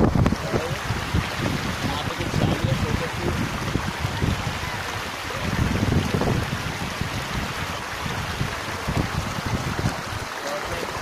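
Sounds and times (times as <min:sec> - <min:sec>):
sea water washing over rocks: 0:00.0 - 0:11.0
wind rumbling on microphone: 0:00.0 - 0:11.0.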